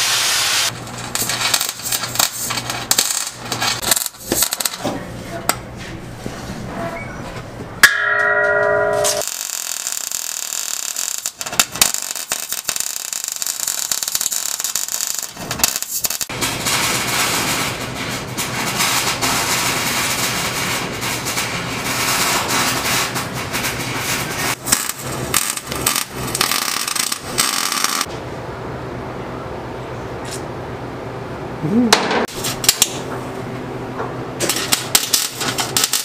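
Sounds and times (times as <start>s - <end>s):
arc welding crackling hiss: 0.0s - 4.8s, 9.2s - 28.1s, 34.5s - 36.0s.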